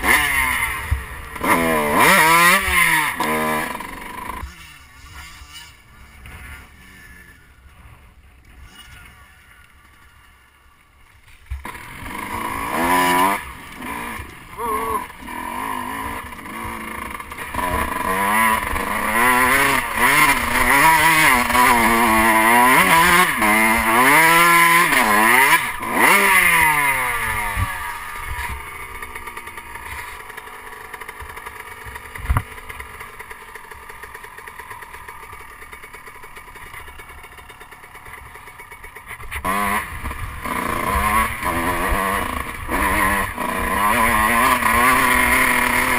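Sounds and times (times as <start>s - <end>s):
motocross bike engine revving: 0.0s - 45.9s.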